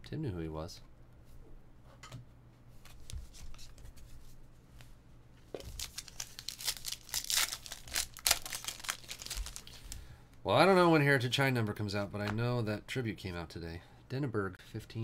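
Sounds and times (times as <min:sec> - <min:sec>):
wrapper tearing and crinkling: 0:05.6 - 0:09.9.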